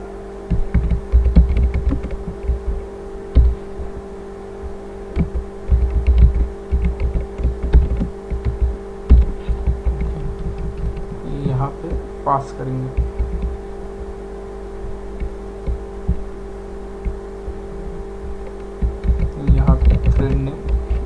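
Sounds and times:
electrical hum: 0.0s - 21.0s
keyboard keystroke clicks: 5.2s - 11.2s, 18.4s - 21.0s.

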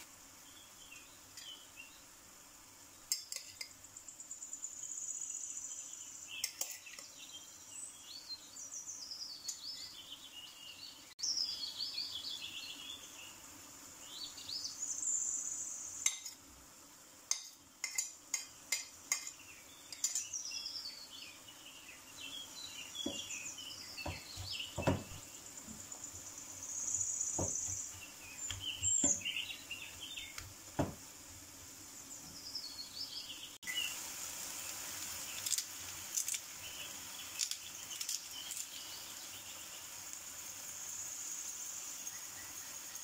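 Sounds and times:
meat sizzling in a pan: 0.0s - 4.0s, 4.8s - 8.2s, 14.0s - 20.9s, 22.5s - 33.0s, 33.6s - 43.0s.

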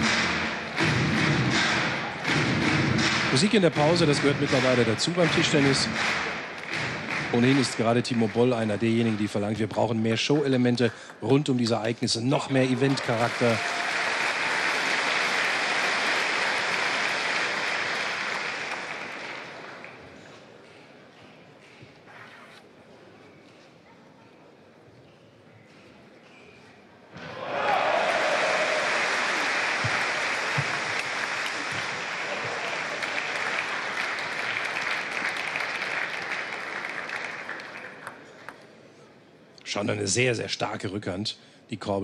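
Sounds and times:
crowd applauding: 1.6s - 10.0s, 12.4s - 20.0s, 27.4s - 38.6s.

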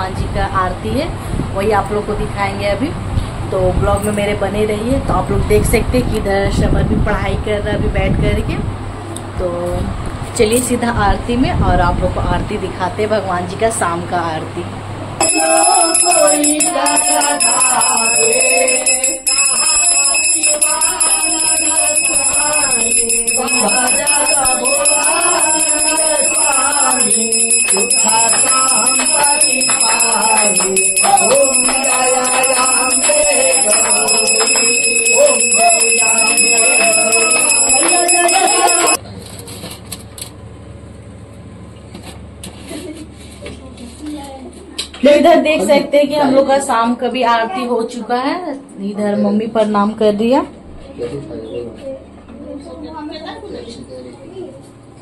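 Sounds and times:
bell ringing: 15.2s - 39.0s
devotional singing: 15.2s - 39.0s.

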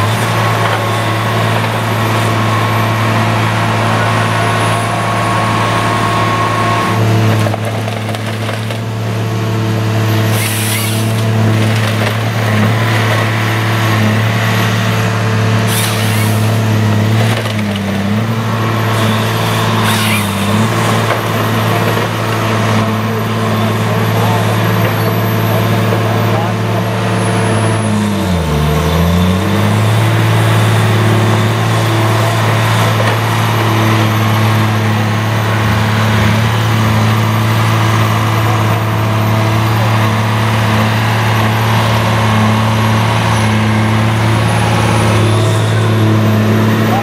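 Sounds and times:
diesel engine running: 0.0s - 47.0s
harvesting head working a log: 9.8s - 47.0s.

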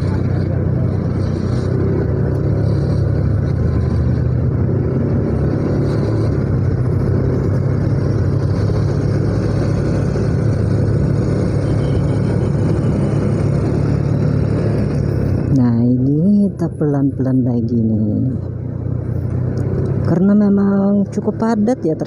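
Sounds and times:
motorcycle engine droning: 0.0s - 16.8s.

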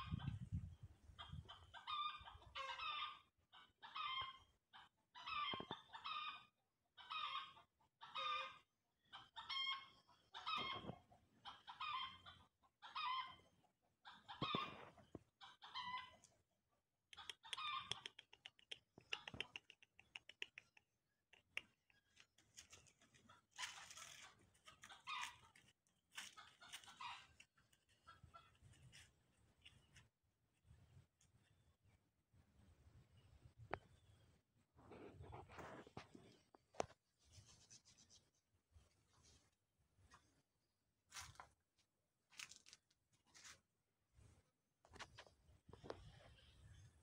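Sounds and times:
chickens clucking: 0.0s - 6.4s, 7.0s - 16.4s, 21.4s - 29.0s
quick runs of clicks: 17.2s - 20.8s.

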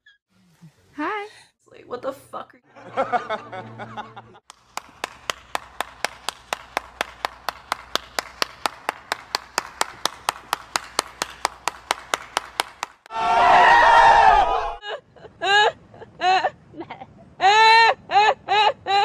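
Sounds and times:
person clapping steadily: 4.4s - 13.1s.

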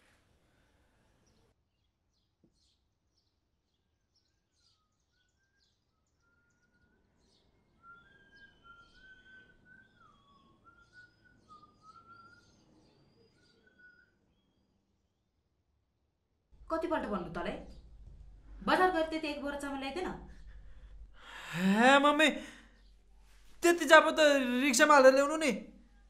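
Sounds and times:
whistled bird song: 4.2s - 14.8s.

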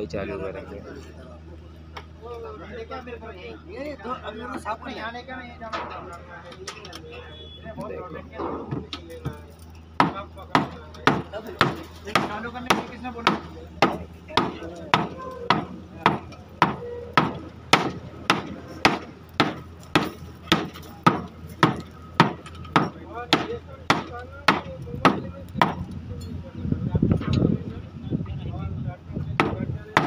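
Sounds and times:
wooden mallet beating rubber belt: 10.0s - 25.8s.

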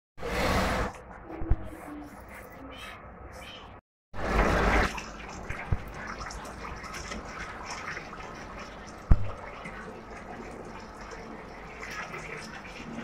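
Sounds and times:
water pouring into tank: 4.2s - 13.0s.

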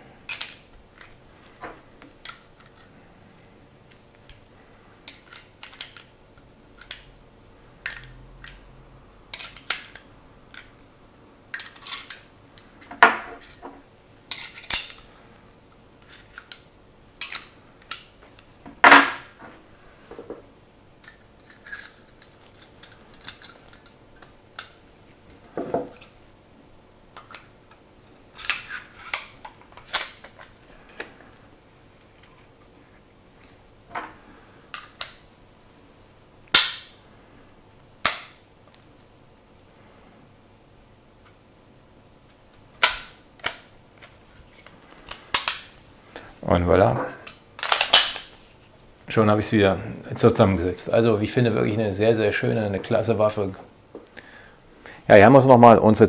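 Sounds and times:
pistol parts clicking and clinking: 0.3s - 1.2s, 5.1s - 6.1s, 6.8s - 7.1s, 9.3s - 10.7s, 16.0s - 18.1s, 21.0s - 24.8s, 42.8s - 43.7s, 47.6s - 48.3s.

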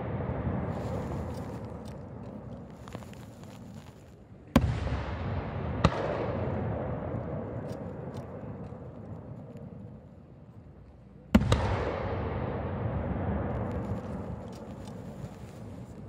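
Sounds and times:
rumbling echo: 0.0s - 2.8s, 4.5s - 10.3s, 11.3s - 15.1s
faint firework crackles: 0.0s - 16.0s.

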